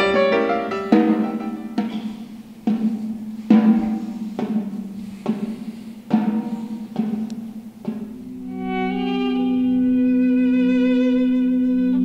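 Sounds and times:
drum struck in slow beat: 0.0s - 8.6s.

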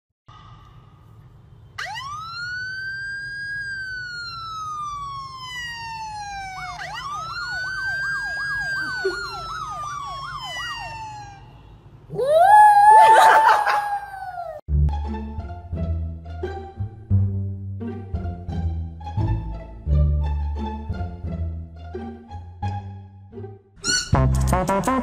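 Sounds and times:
siren wail from phone speaker: 1.8s - 14.6s
siren yelp: 1.8s - 14.6s.

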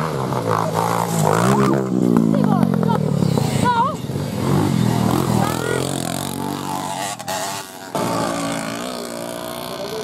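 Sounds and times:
two-stroke moped engine: 0.0s - 10.0s.

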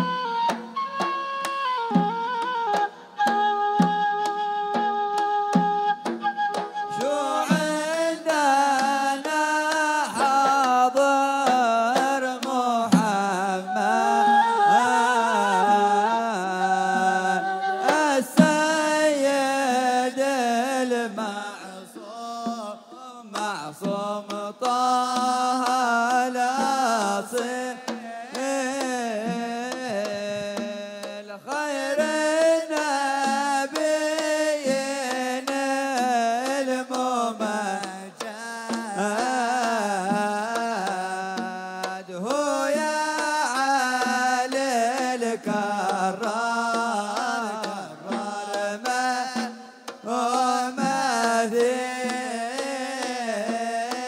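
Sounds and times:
wooden pipe melody: 0.0s - 9.0s, 13.1s - 19.1s
person singing: 0.0s - 54.0s.

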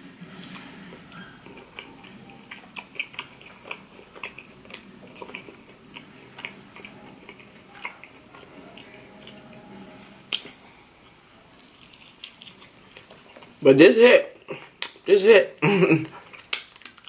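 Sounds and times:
chewing with sticky mouth clicks: 0.9s - 9.4s, 10.3s - 13.6s, 16.0s - 17.0s.

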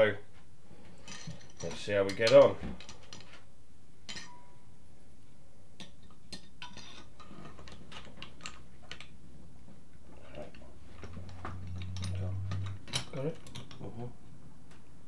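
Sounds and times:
steady low hum: 10.1s - 14.1s.

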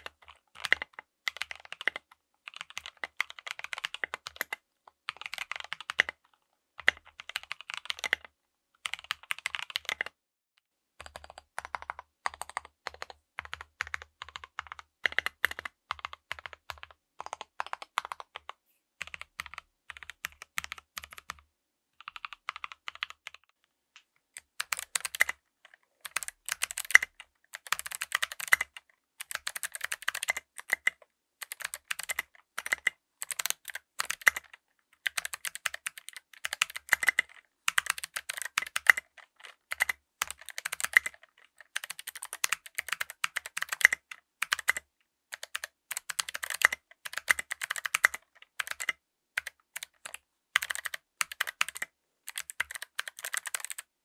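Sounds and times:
clicky mechanical keyboard typing: 0.0s - 10.2s, 11.0s - 21.4s, 22.0s - 23.6s, 24.4s - 53.9s.

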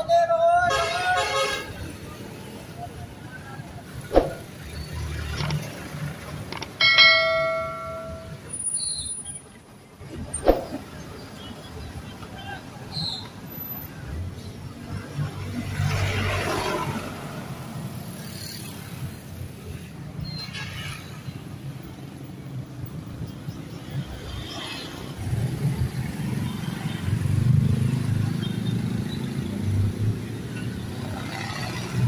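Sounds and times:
motorcycles and cars passing: 1.7s - 8.6s, 13.7s - 20.0s, 20.9s - 32.0s.

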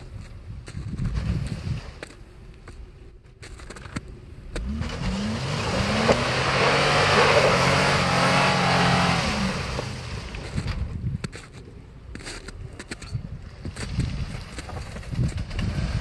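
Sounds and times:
car engine revving: 4.5s - 10.8s.

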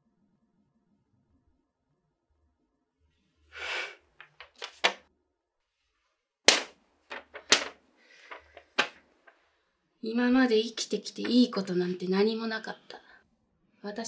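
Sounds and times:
paper rustling: 4.2s - 5.0s, 7.1s - 9.0s
paper snapping: 4.2s - 5.0s, 6.5s - 7.7s.

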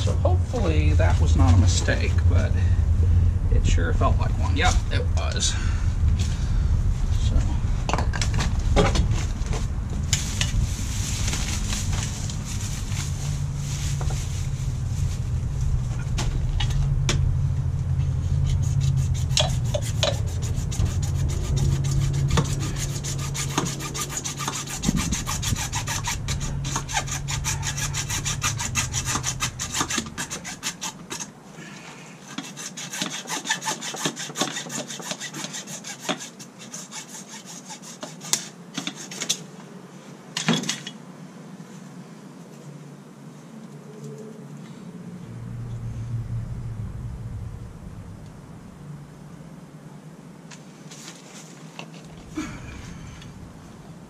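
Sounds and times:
low rumble: 0.0s - 30.3s, 44.5s - 50.3s, 52.1s - 54.0s
hand saw cutting plastic pipe: 18.4s - 31.3s, 32.2s - 39.4s.

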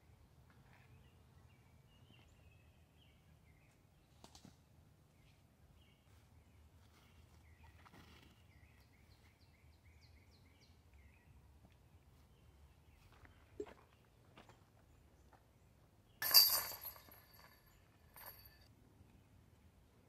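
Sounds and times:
faint birdsong: 0.0s - 20.0s.

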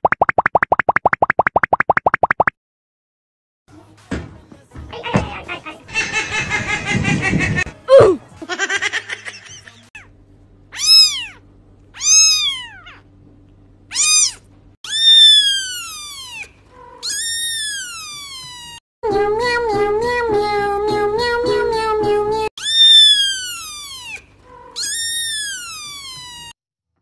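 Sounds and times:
kitten meowing: 10.7s - 11.4s, 12.0s - 13.0s, 13.9s - 18.8s, 22.6s - 26.6s.

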